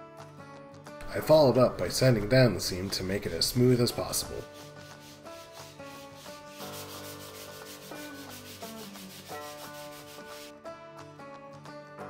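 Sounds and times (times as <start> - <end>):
soft background music: 0.0 - 12.0
sandpaper rubbing on wood: 4.0 - 10.5.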